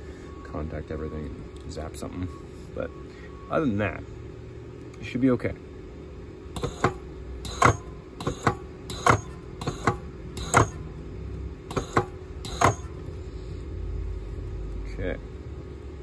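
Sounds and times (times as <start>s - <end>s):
spot welder snapping: 6.6s - 10.8s, 11.7s - 13.0s.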